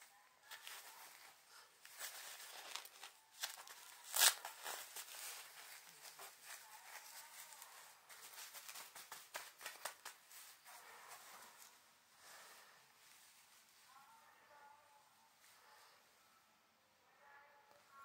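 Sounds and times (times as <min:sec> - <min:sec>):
plastic crinkling and rustling: 0:00.4 - 0:13.8.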